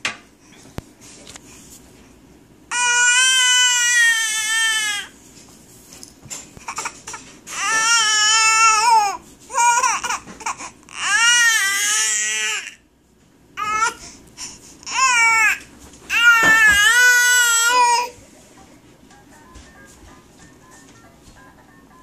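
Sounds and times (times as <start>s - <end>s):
baby crying: 2.7s - 5.2s, 6.6s - 12.8s, 13.6s - 14.0s, 14.8s - 18.2s.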